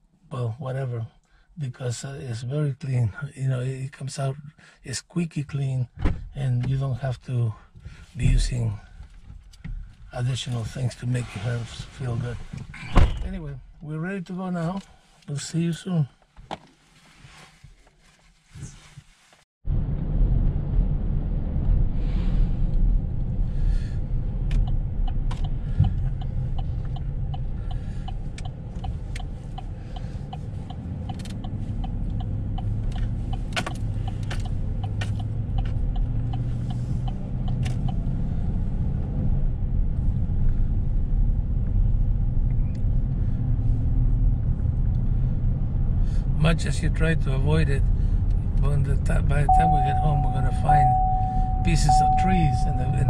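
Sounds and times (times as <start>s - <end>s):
engine and road noise in cab: 5.5s - 53.0s.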